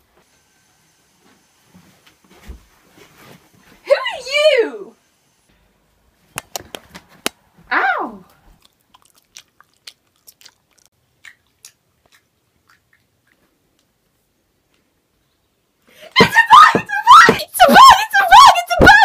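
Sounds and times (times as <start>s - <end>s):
person chewing crunchy food: 8.4s - 14.0s.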